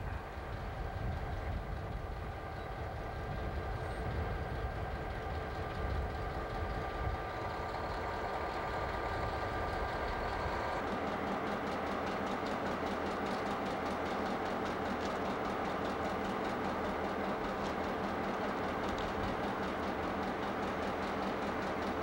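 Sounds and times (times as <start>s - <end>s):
steady low rumble: 0.0s - 10.8s
diesel locomotive idling: 0.0s - 22.0s.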